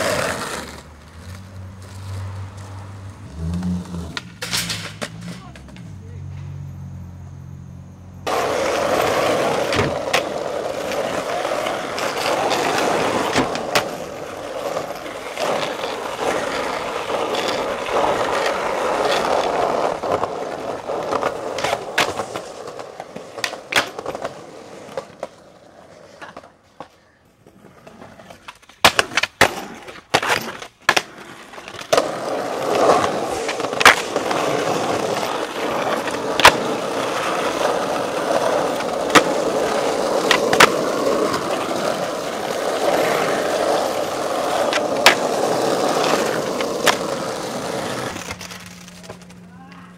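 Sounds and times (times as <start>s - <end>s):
skateboard clicks: 0.0s - 6.0s, 8.3s - 49.8s
skateboard clacking on ground: 0.0s - 6.5s, 8.2s - 49.9s
skateboard wheels rolling on concrete: 0.0s - 49.9s.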